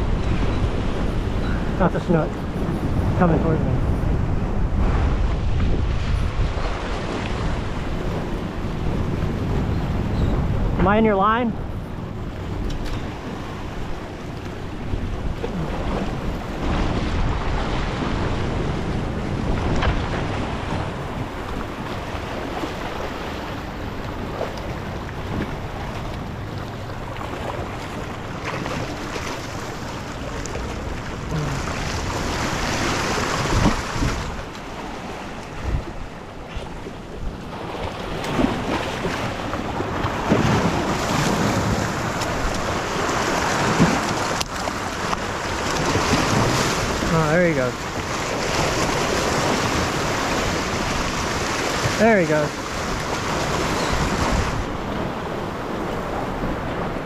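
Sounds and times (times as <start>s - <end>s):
wind buffeting microphone: 0.0s - 57.0s
waves breaking against rocks: 12.4s - 57.0s.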